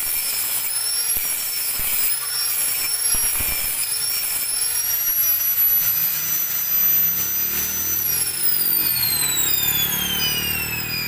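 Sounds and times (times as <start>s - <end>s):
high electronic whine: 0.6s - 11.0s
falling electronic tones: 5.7s - 11.0s.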